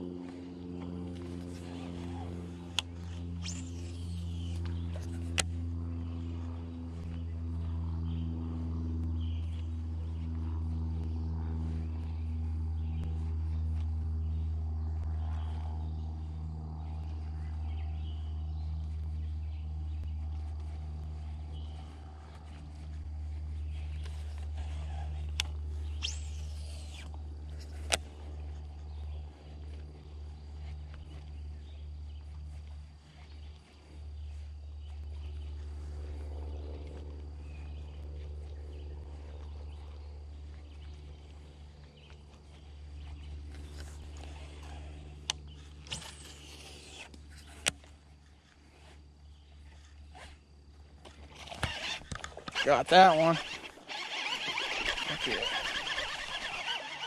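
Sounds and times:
steady low tonal hum: 0.0s - 57.0s
faint animal calls: 51.2s - 57.0s
sharp clicks: 51.4s - 57.0s.

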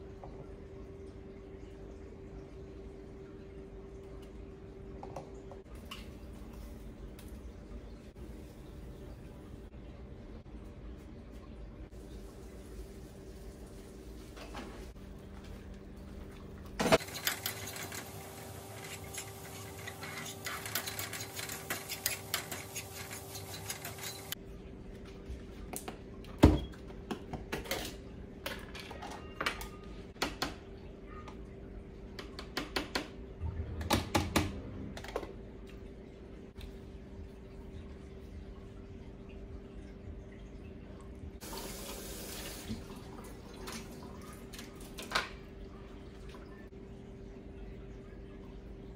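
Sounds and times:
dishes and utensils clinking: 16.8s - 24.4s.

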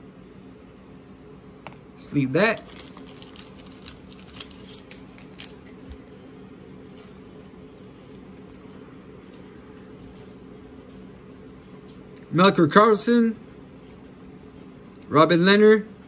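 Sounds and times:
steady low hum: 0.0s - 16.0s
cards clicking and rustling: 2.5s - 6.0s.

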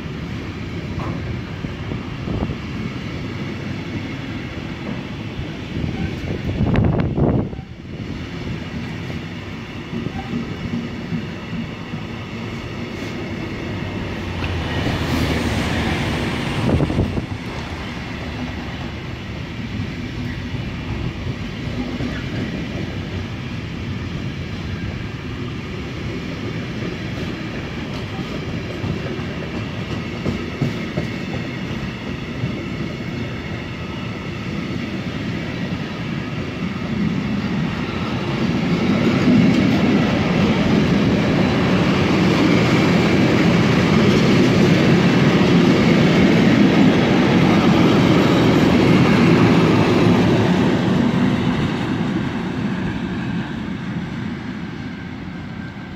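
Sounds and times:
freight train wheels clattering: 8.5s - 19.4s, 26.4s - 34.6s.

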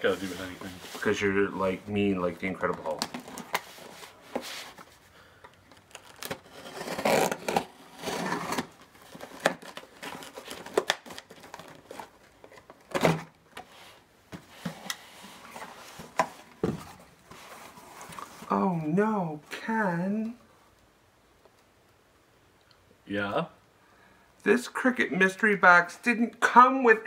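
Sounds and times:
tape and cardboard tearing: 5.8s - 12.1s
box cutter slitting tape: 6.2s - 8.7s.

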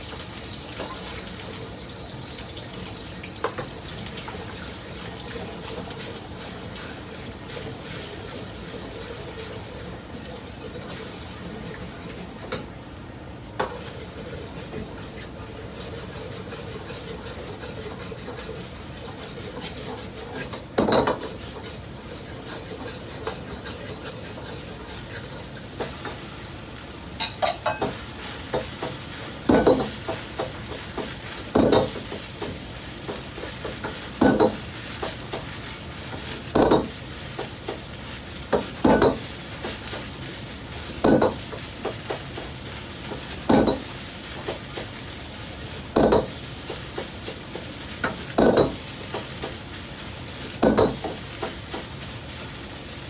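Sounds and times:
rice sizzling in a wok: 0.0s - 53.0s
metal ladle clanging on wok: 27.2s - 28.0s.

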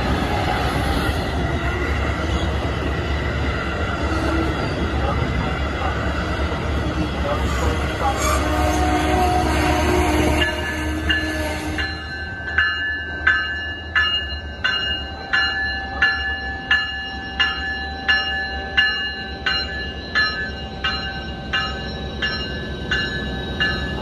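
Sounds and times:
diesel locomotive rumble: 0.0s - 15.4s
railroad crossing bell ringing: 0.0s - 24.0s
train wheels on track: 0.0s - 24.0s.

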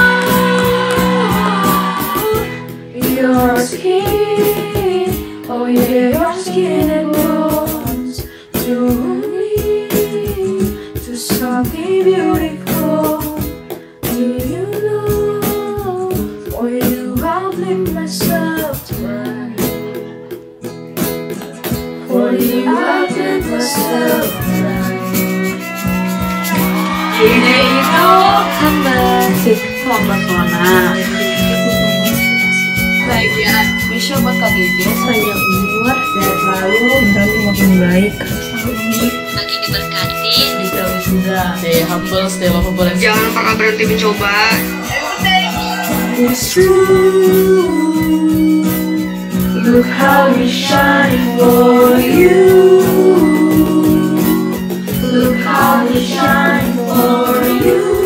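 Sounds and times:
voices singing wordless melody: 0.0s - 19.6s, 22.0s - 30.4s, 43.0s - 58.0s
acoustic guitar: 0.0s - 58.0s
hand percussion: 23.8s - 58.0s.

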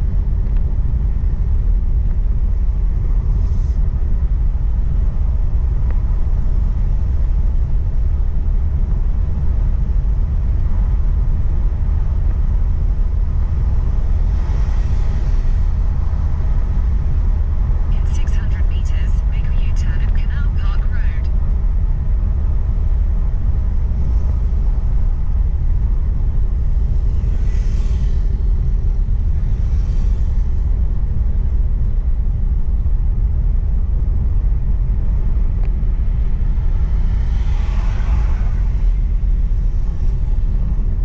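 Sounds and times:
car cabin road rumble: 0.0s - 41.0s.

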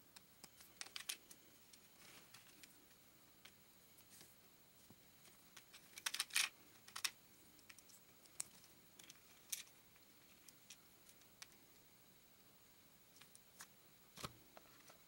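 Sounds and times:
plastic pieces clicking together: 0.4s - 1.3s, 5.5s - 9.7s.

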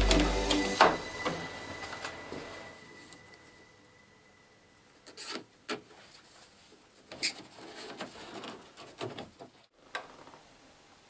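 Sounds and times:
cable rustling and rubbing: 5.2s - 9.7s.

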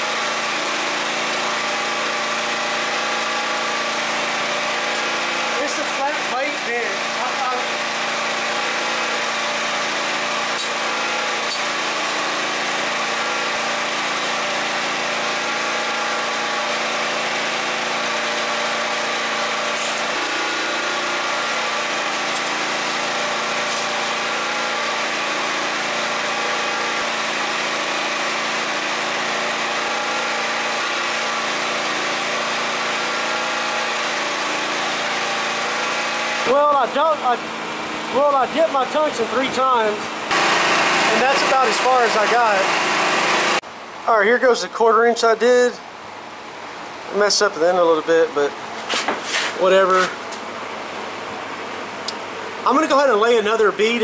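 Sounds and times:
generator engine running: 0.0s - 54.0s.

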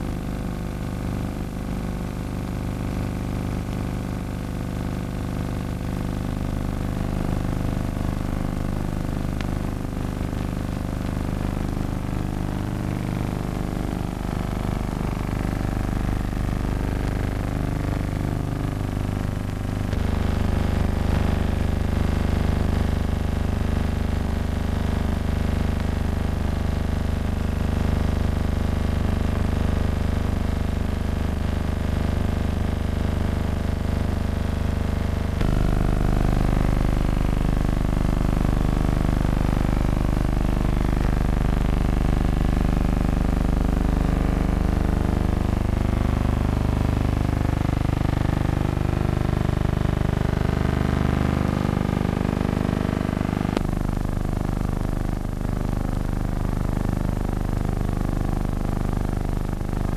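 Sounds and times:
low synthesizer drone: 35.4s - 35.8s.

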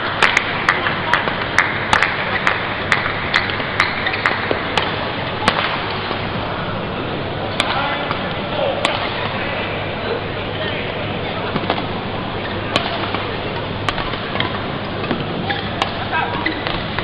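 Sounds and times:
rackets striking shuttlecock: 0.0s - 6.2s, 7.5s - 9.4s, 11.5s - 12.0s, 12.7s - 17.0s
arena crowd noise: 0.0s - 17.0s.

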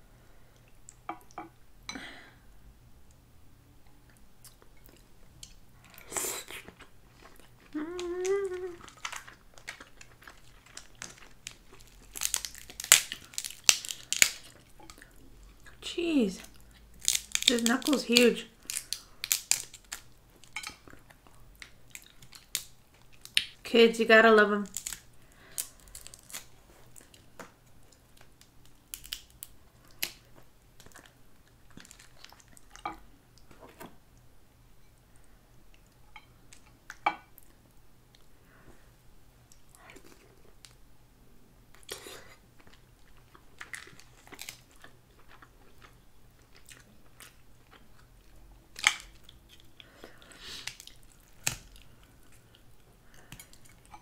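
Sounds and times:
crab shell cracking: 7.3s - 15.0s, 16.6s - 20.8s, 24.7s - 27.2s, 28.2s - 31.0s, 50.6s - 52.4s.

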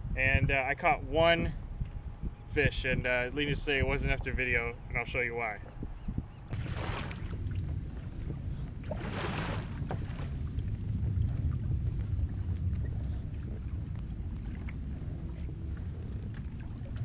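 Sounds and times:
wind buffeting microphone: 0.0s - 17.0s
water washing against hull: 6.5s - 17.0s
faint ticks: 13.8s - 16.6s.

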